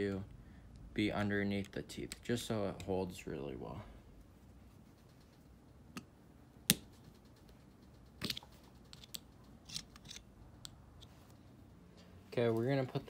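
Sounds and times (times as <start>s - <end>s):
metallic clicks and taps: 1.6s - 3.0s, 5.1s - 11.2s.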